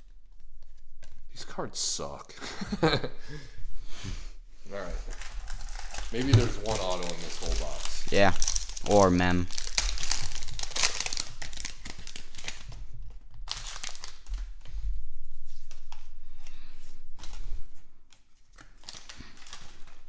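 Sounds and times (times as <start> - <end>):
wrapper crinkling: 4.8 - 14.8, 17.2 - 20.0
cards rustling and scraping: 4.9 - 12.8, 15.5 - 20.0.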